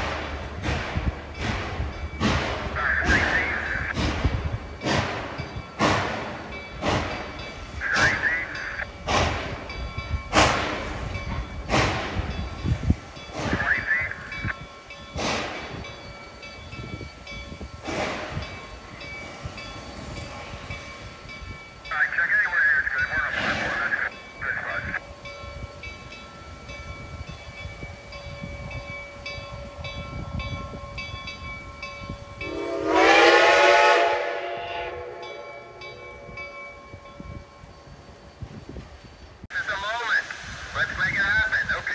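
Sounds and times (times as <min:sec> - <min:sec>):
hissing steam: 0:00.0 - 0:28.8, 0:37.7 - 0:41.9
steam locomotive exhaust chuffs: 0:00.0 - 0:41.9
steam whistle blast: 0:32.4 - 0:35.8.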